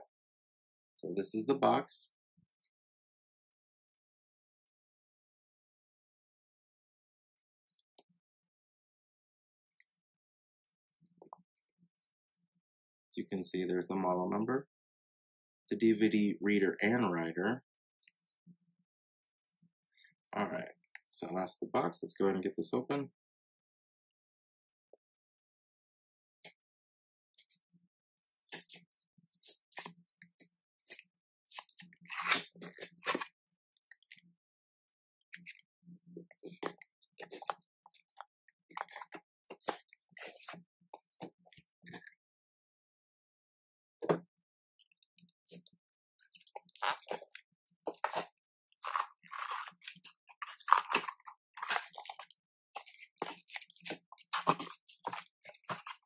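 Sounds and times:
packaging crinkling and rustling: 46.6 - 56.0.

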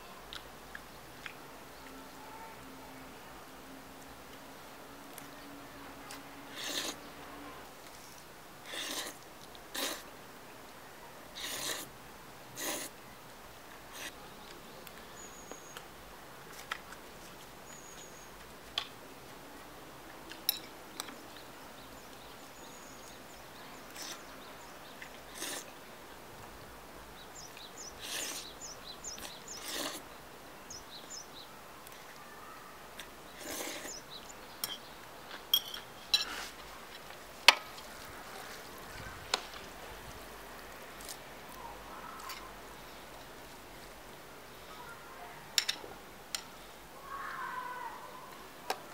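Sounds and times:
noodle slurping: 6.5 - 7.0, 8.6 - 10.0, 11.4 - 11.9, 12.6 - 12.9, 25.3 - 25.7, 28.0 - 28.5, 29.2 - 30.0, 33.4 - 34.0
utensil clinking on dishes: 20.5 - 20.8, 35.5 - 36.4.

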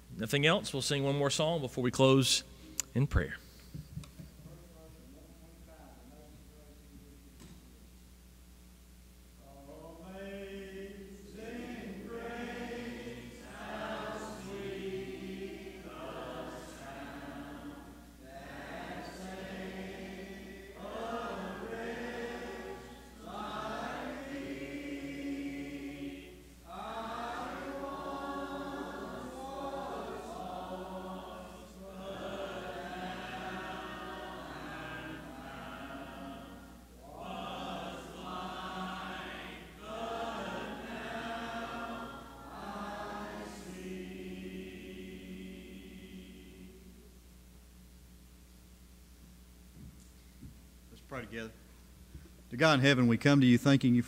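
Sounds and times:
congregation singing a hymn: 0.0 - 2.4, 9.4 - 47.2.

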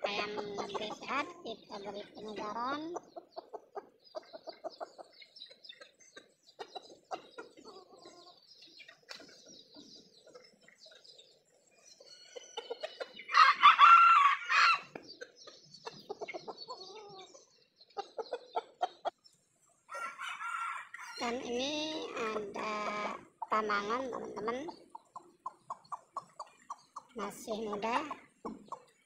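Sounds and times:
chickens clucking: 0.0 - 29.0
rooster crowing: 13.3 - 14.9, 19.9 - 21.3.

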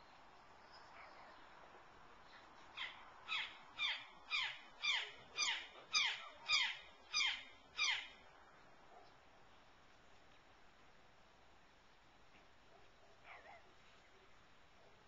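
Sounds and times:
eagle calling: 2.8 - 8.2.

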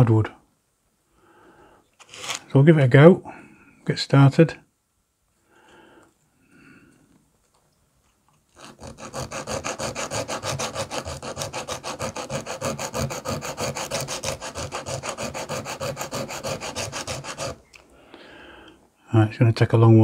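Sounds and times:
sandpaper rubbing on wood: 8.6 - 17.6.

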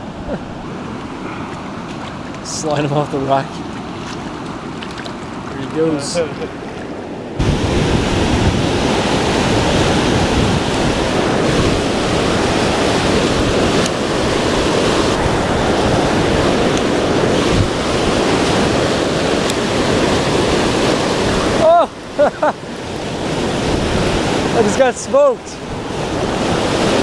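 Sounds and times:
waterfall rushing over rocks: 7.4 - 27.0.

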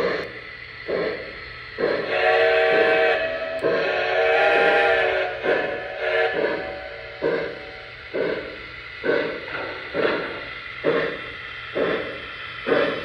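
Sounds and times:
model train chuffs: 0.0 - 13.0
model train steam whistle: 1.8 - 8.0.

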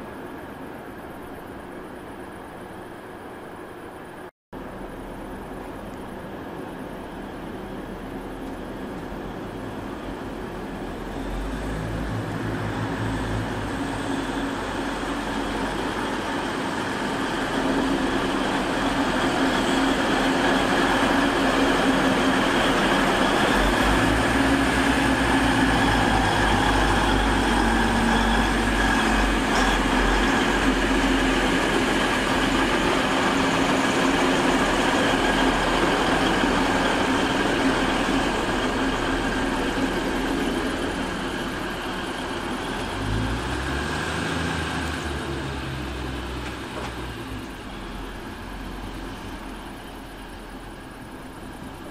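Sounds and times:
diesel train engines rumbling: 0.0 - 51.9
rail noise: 0.0 - 51.9.

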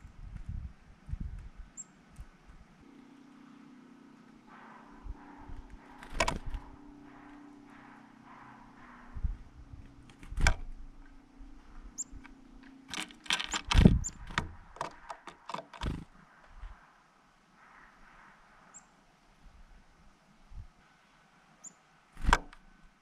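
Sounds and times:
faint high bird chirps: 1.7 - 2.0, 2.8 - 10.1, 10.9 - 12.8, 17.6 - 19.0, 21.6 - 21.9.

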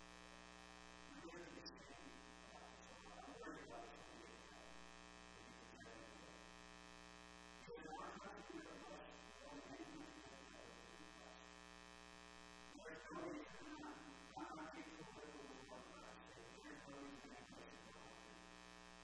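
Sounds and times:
faint indistinct voice: 1.1 - 4.8, 5.4 - 6.4, 7.6 - 11.5, 12.7 - 18.4.

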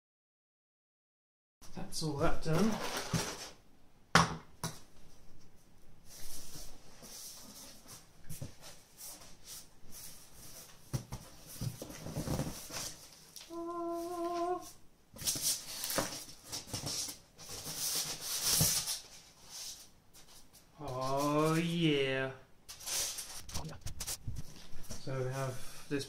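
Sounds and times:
cardboard scraping and rubbing: 2.5 - 3.6, 6.2 - 13.2, 15.2 - 19.8, 22.7 - 25.0.

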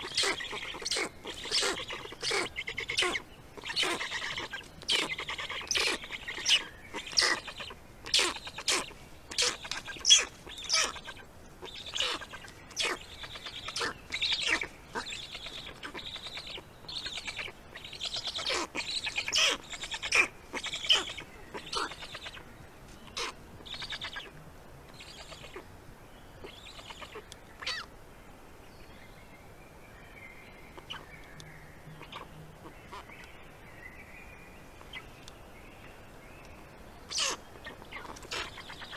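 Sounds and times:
stork chicks begging calls: 0.0 - 25.7, 32.0 - 33.3, 37.0 - 38.9.

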